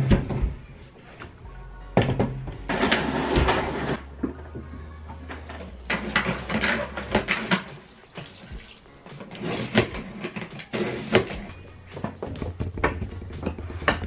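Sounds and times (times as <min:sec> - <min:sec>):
quiet background music: 0:00.0 - 0:14.0
water splashing and sloshing: 0:04.2 - 0:11.4.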